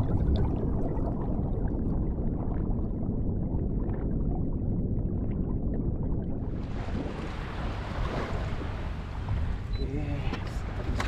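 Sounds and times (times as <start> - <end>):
water sloshing against hull: 6.3 - 11.0.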